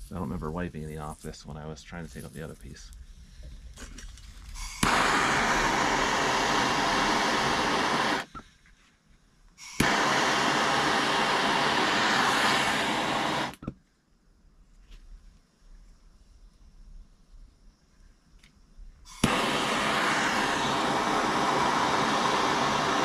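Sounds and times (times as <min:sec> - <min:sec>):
gas torch hissing: 0:00.0 - 0:08.4, 0:09.6 - 0:13.7, 0:19.1 - 0:23.0
torch igniter click: 0:04.6 - 0:08.4, 0:09.6 - 0:13.8, 0:19.1 - 0:23.0.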